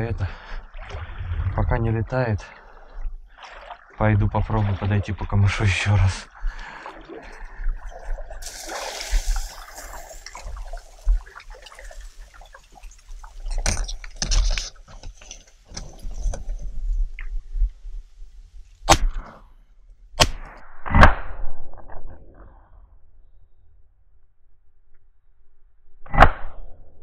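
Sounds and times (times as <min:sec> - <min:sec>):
splashing through reeds and water: 0:02.6 - 0:05.0, 0:06.3 - 0:15.0
shotgun firing: 0:20.2 - 0:21.2.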